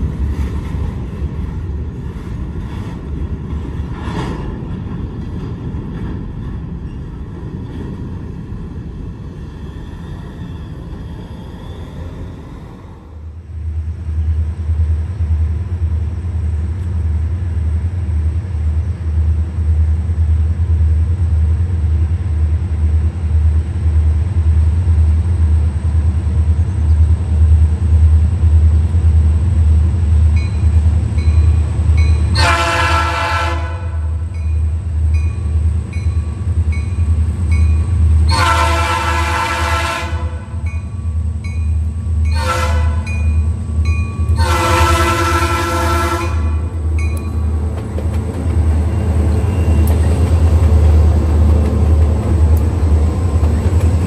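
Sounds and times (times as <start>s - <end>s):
diesel locomotives rumbling: 0.0s - 54.0s
locomotive horn blasts: 32.3s - 34.2s, 38.3s - 40.6s, 42.3s - 43.2s, 44.4s - 46.7s.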